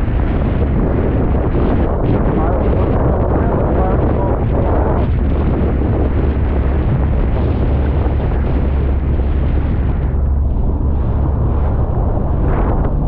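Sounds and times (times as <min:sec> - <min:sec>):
steady low drone: 0:00.0 - 0:13.0
wind buffeting microphone: 0:00.0 - 0:13.0.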